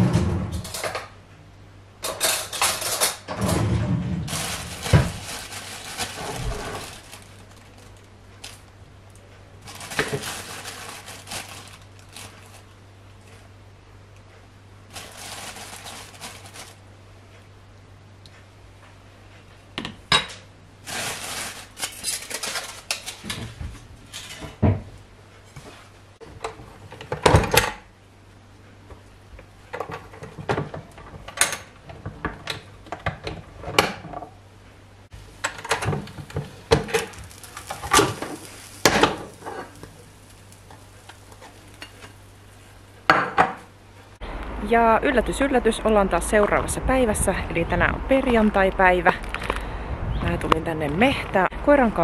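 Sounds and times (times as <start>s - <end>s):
plastic bag rustling: 4.0s - 8.8s, 9.6s - 12.8s, 14.9s - 16.9s, 20.8s - 24.3s, 36.0s - 42.7s.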